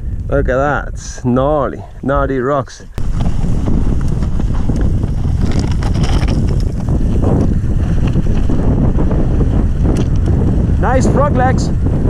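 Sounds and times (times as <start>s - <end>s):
wind buffeting microphone: 0.0s - 12.0s
bike rattling over bumps: 3.0s - 10.8s.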